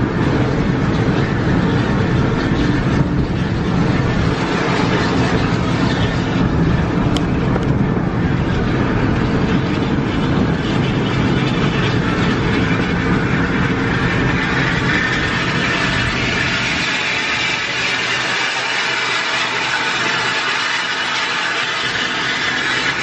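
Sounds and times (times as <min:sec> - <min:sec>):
coach engine drone: 0:00.0 - 0:23.0
tyre and road noise: 0:00.0 - 0:23.0.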